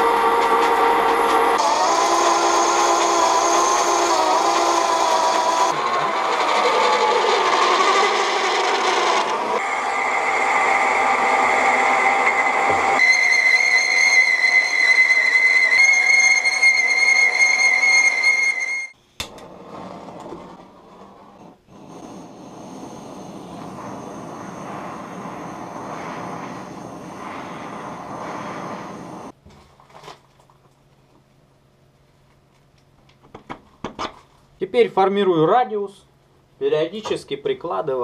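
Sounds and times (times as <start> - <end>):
gas torch hissing: 0.0 - 13.6, 19.2 - 29.4
metal lathe cutting whine: 0.0 - 18.9.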